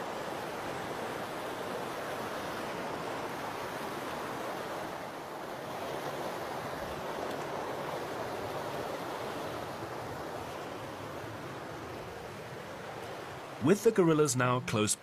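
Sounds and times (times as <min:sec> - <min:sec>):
rushing forest stream: 0:00.0 - 0:15.0.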